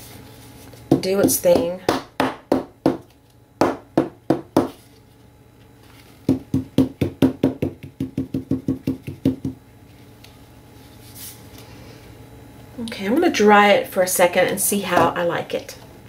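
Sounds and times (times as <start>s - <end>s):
knocks on painting canvas: 0.9s - 3.0s, 3.6s - 4.8s, 6.3s - 9.6s.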